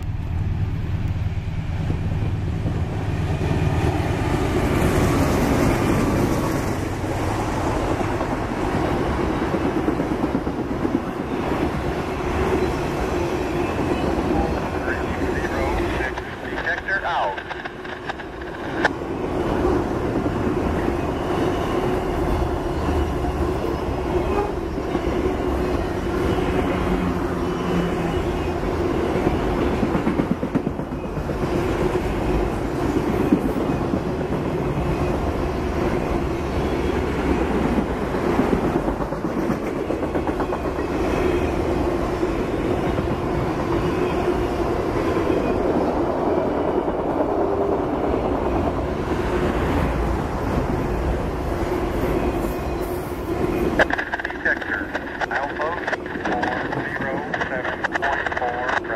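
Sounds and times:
freight train rolling past: 0:00.0 - 0:58.9
steel wheels clattering on rails: 0:17.2 - 0:18.9, 0:37.3 - 0:40.9.

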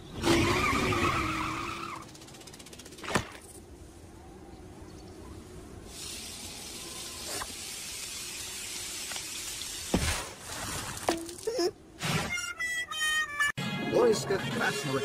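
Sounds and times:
music: 0:12.5 - 0:15.0.

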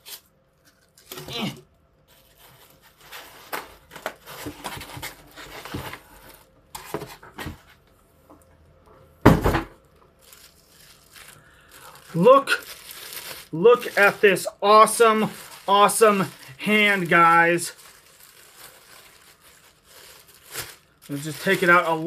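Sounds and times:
styrofoam scraping and crinkling: 0:00.0 - 0:07.8, 0:10.2 - 0:22.0
thump: 0:09.2 - 0:09.7.

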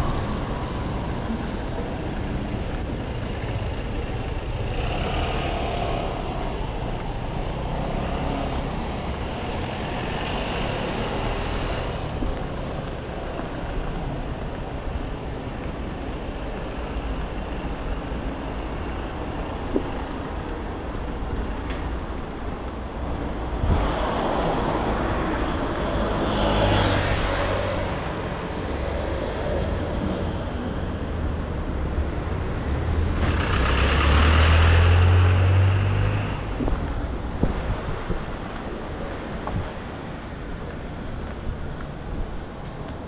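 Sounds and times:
passing traffic: 0:00.0 - 0:43.0
heavy vehicle engine hum: 0:27.1 - 0:40.1.

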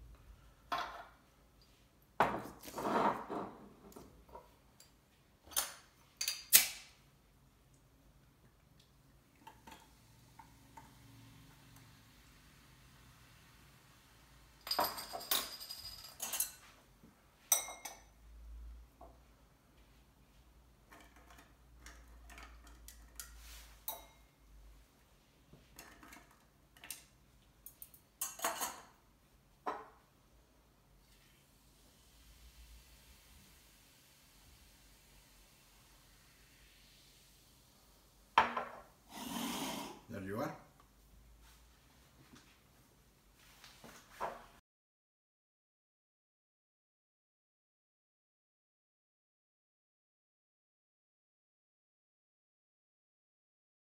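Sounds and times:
glasses and bottles clinking: 0:14.6 - 0:16.6.

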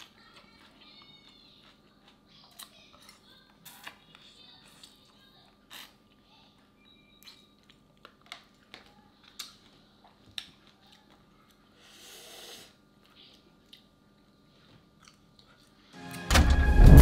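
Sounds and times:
person chewing: 0:00.0 - 0:05.1, 0:05.7 - 0:06.2, 0:07.1 - 0:15.9.

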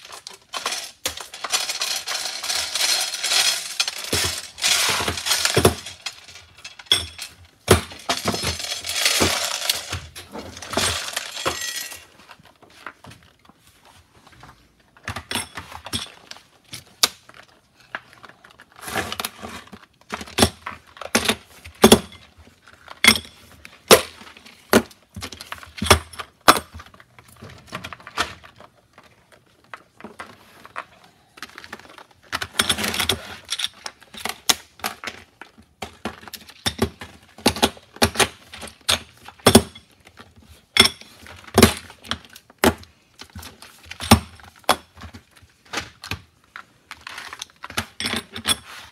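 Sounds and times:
cartridges clinking and clattering: 0:00.0 - 0:12.0.

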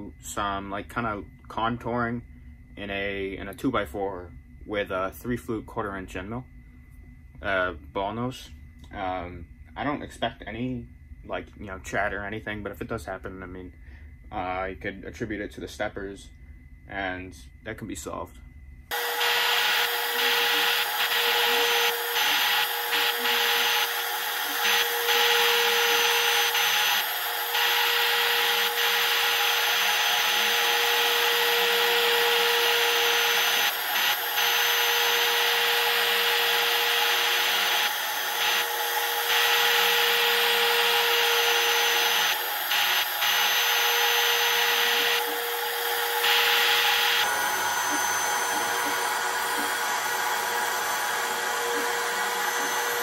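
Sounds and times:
low machine tone: 0:00.0 - 0:53.0
router whining and cutting wood: 0:18.9 - 0:53.0.

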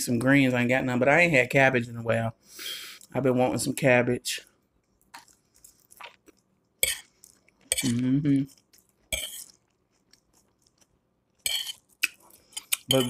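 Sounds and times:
chewing noises: 0:04.8 - 0:13.0
person humming: 0:07.8 - 0:08.5
fork clinking on glass plate: 0:12.6 - 0:13.0.

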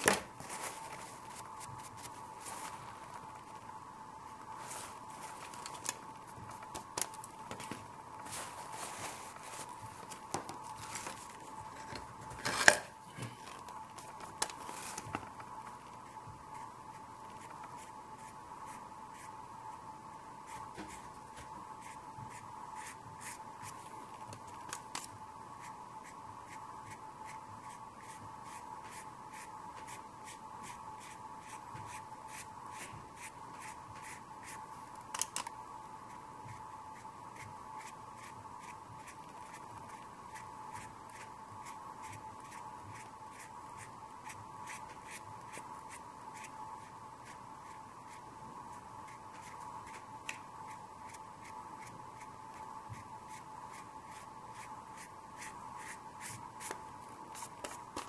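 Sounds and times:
steady hum: 0:00.0 - 0:58.0
scratchy brush strokes: 0:00.5 - 0:03.6, 0:04.4 - 0:06.6, 0:08.2 - 0:11.6, 0:21.8 - 0:24.0, 0:25.6 - 0:34.8, 0:36.1 - 0:56.8.

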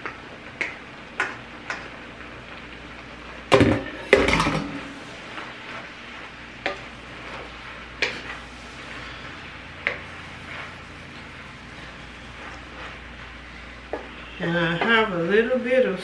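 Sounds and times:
low steady sizzle: 0:00.0 - 0:16.0.

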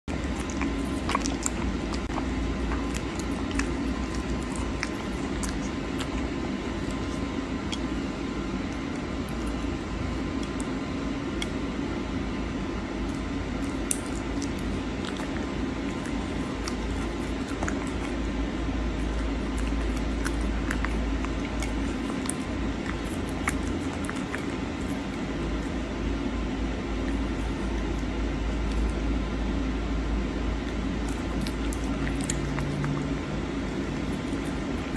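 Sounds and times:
wet chewing and licking: 0:00.0 - 0:11.8, 0:13.0 - 0:29.2, 0:30.6 - 0:34.9
low background hum: 0:00.0 - 0:34.9.

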